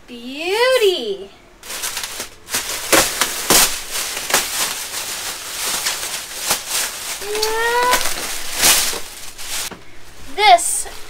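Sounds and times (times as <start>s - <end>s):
plastic film crinkling: 1.6s - 10.2s.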